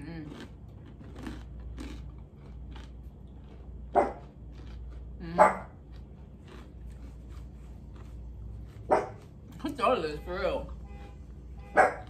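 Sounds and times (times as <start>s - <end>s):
dog barking: 3.9s - 4.3s, 5.4s - 5.7s, 8.9s - 9.2s, 11.7s - 12.0s.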